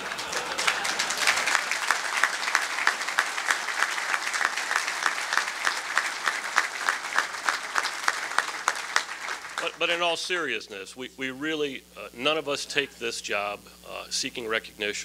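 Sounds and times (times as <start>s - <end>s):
nearby hands clapping steadily: 0.0s - 9.9s
audience applauding: 0.0s - 10.2s.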